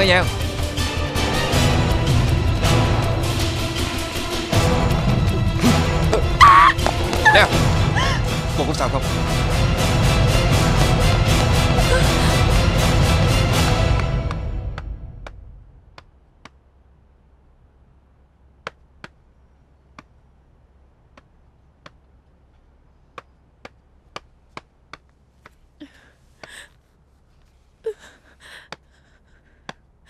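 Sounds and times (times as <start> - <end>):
low steady hum: 4.6 - 30.0
woman gasping: 7.2 - 8.3, 11.8 - 12.5, 25.8 - 26.8, 27.8 - 29.8.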